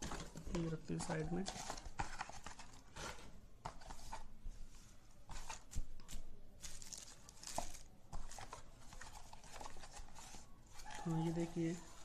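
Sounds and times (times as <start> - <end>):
packaging rustling and crinkling: 5.3 - 12.0.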